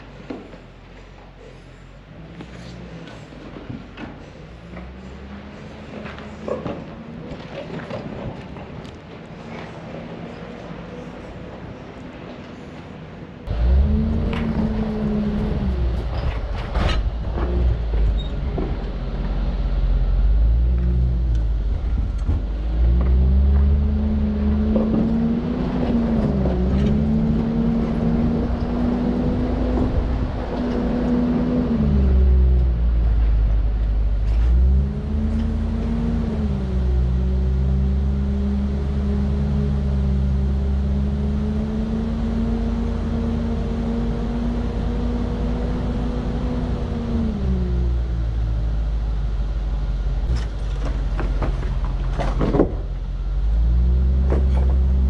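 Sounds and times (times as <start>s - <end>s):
car engine revving: 13.5s - 51.5s.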